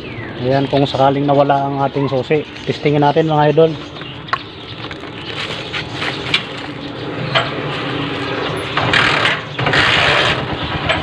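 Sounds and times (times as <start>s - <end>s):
motorcycle engine starting and running: 3.6s - 11.0s.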